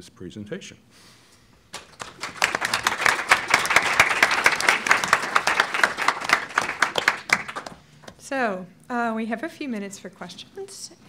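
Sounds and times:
audience applauding: 0:01.7 - 0:08.2.

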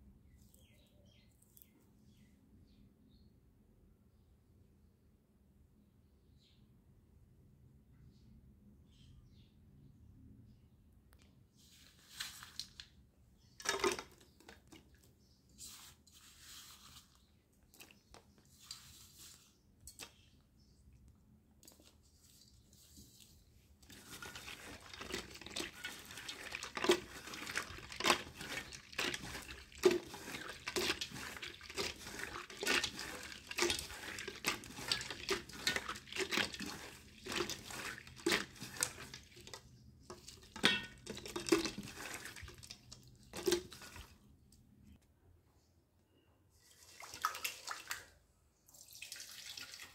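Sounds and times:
hands swishing pieces in water: 0:13.6 - 0:20.2, 0:21.6 - 0:44.3
water splashing: 0:23.9 - 0:39.3.

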